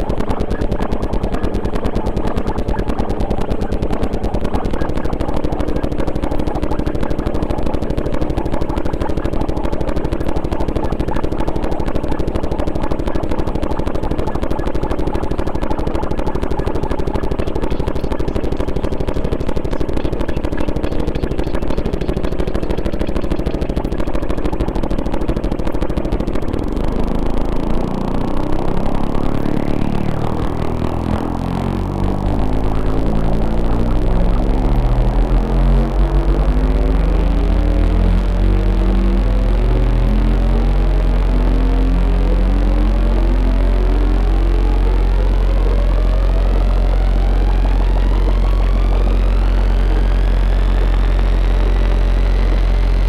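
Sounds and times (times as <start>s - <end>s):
deeper drone layer: 0.0s - 53.0s
pulsing electronic drone: 0.0s - 53.0s
tone gliding upward: 0.0s - 53.0s.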